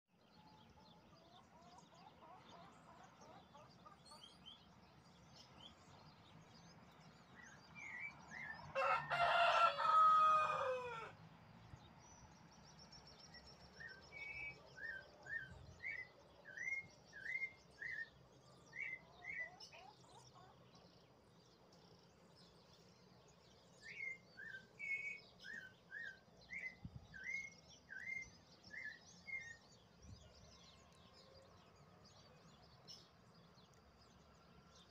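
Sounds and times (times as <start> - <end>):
small birds chirping faintly: 0.1 - 34.9
rooster crowing: 8.7 - 11.2.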